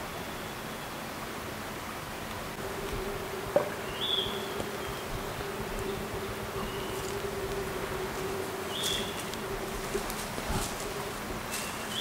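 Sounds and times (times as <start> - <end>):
insect buzzing: 2.6 - 12.0
high chirps: 3.0 - 8.0.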